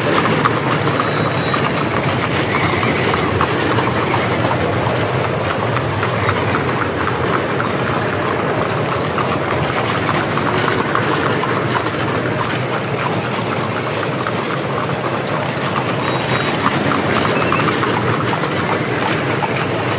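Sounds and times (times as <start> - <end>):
carriage wheels rolling: 0.0 - 19.9
hooves clopping: 0.0 - 19.9.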